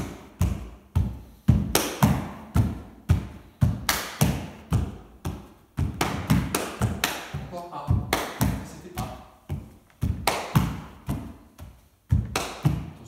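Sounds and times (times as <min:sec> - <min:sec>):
bare feet stomping on wooden floor: 0:00.0 - 0:13.0
hand slaps on body: 0:01.6 - 0:02.4, 0:03.1 - 0:07.4, 0:10.0 - 0:11.4, 0:12.1 - 0:13.0.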